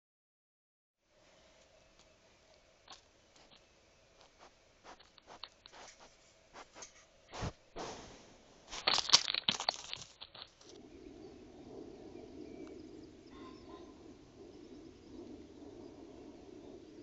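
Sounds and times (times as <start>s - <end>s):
steady low hiss: 1.0s - 17.0s
faint bird chirps: 10.7s - 17.0s.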